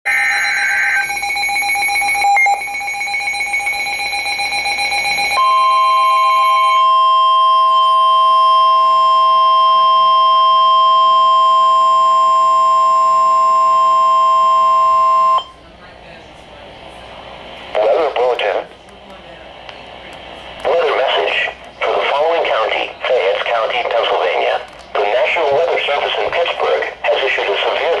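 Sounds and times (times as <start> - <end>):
screechy digital data burst: 0.1 - 1.7
pulsing beep: 0.1 - 15.6
steady warning alarm tone: 0.1 - 15.6.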